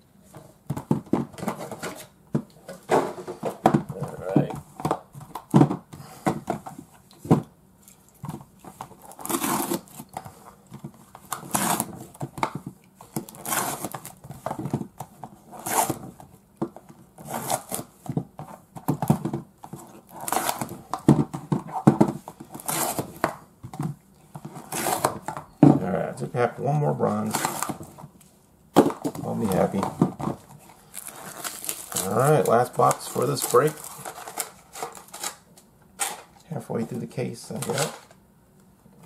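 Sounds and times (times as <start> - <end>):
cardboard boxes tearing: 9.0 - 10.0, 11.3 - 12.1, 13.2 - 14.2, 15.5 - 16.1, 17.2 - 17.9, 19.8 - 20.8, 22.5 - 23.3, 24.5 - 25.3, 27.2 - 27.9, 28.9 - 35.4.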